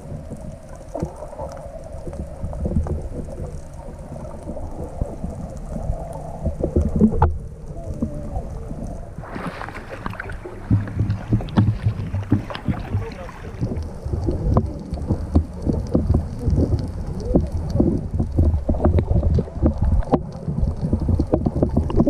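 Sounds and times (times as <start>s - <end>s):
underwater rumble of moving water: 0.0s - 22.0s
underwater pops and clicks: 9.4s - 22.0s.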